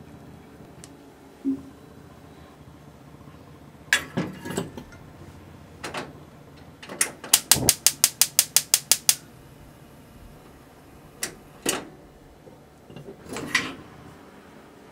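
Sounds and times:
hob spark igniter clicking: 0:07.3 - 0:09.2.

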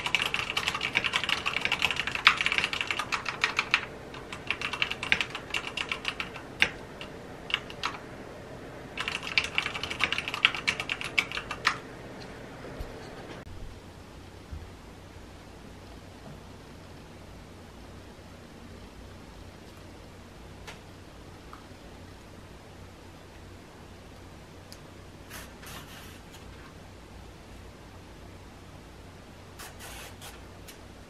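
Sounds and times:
mechanical keyboard typing: 0:00.0 - 0:08.0, 0:09.0 - 0:11.8.

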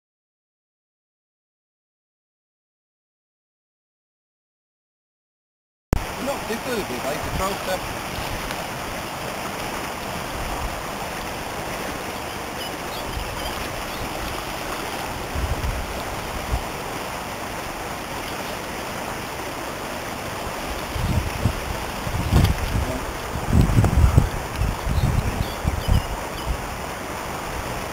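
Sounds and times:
river water rushing over stones: 0:06.0 - 0:27.9.

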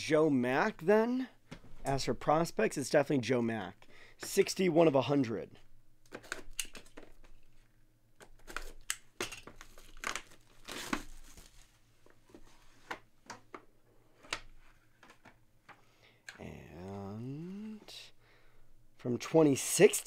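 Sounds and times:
plastic wrap tearing: 0:09.5 - 0:11.6.

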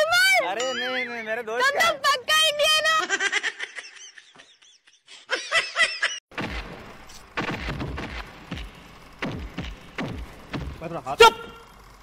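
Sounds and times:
woman laughing: 0:02.8 - 0:06.2.

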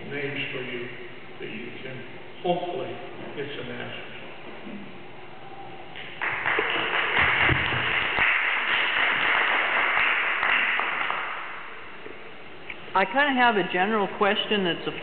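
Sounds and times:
audience applauding: 0:06.0 - 0:11.7.

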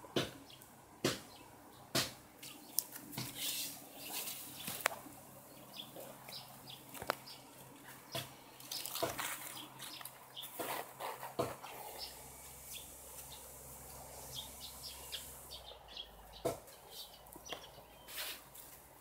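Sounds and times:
rustling through leaves and grass: 0:02.4 - 0:19.0.

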